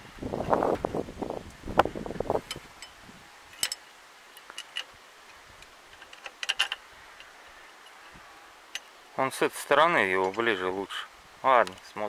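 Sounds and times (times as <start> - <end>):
spanner clicking on bolts: 5.9 - 8.0.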